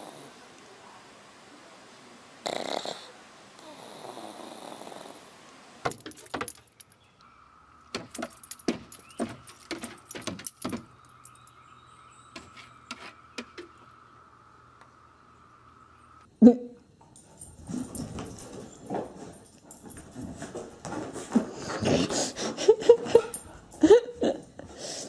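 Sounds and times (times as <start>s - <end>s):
dog snoring: 2.4s - 5.3s
dog claws and collar clicking: 5.9s - 7.0s, 7.9s - 11.6s.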